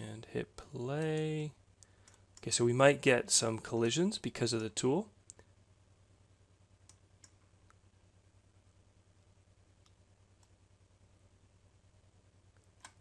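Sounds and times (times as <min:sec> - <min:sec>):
computer mouse clicks: 0:12.6 - 0:13.0.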